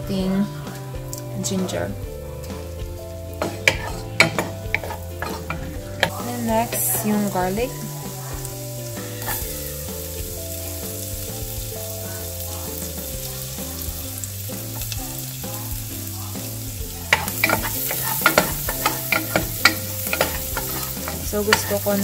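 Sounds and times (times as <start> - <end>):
garlic sizzling in butter: 2.4 - 22.0
wooden spoon knocking and scraping: 3.4 - 7.0, 17.1 - 22.0.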